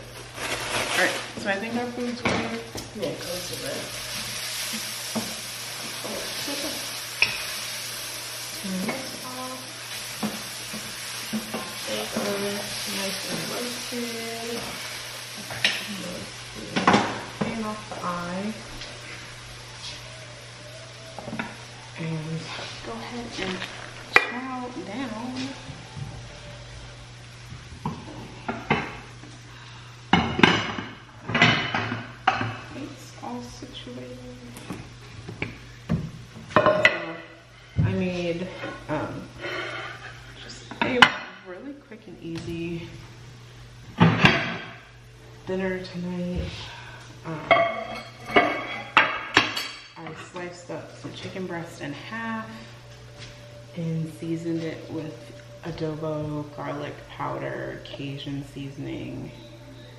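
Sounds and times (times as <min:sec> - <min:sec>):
food sizzling in a pan: 0:00.0 - 0:59.9
cookware and utensils clattering: 0:00.2 - 0:07.7, 0:08.5 - 0:18.1, 0:30.1 - 0:32.9, 0:35.3 - 0:41.5, 0:44.0 - 0:45.0, 0:47.3 - 0:51.4.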